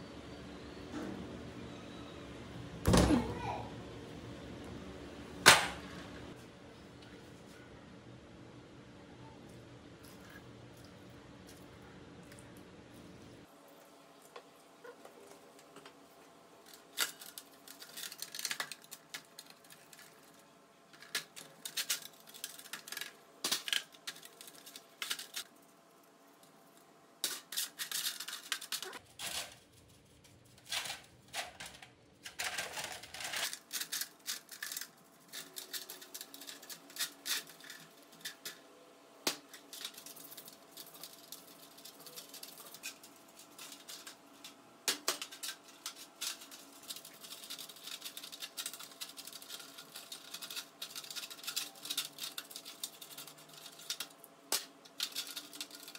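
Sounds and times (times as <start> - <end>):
metal parts clinking and scraping: 20.9 - 25.5, 27.2 - 38.6, 39.5 - 55.9.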